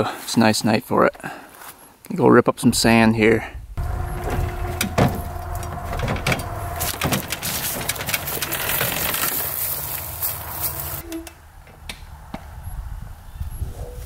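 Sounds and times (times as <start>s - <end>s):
dirt bike clanking on metal ramp: 3.8s - 11.1s
footsteps crunching dry leaves: 8.8s - 11.0s.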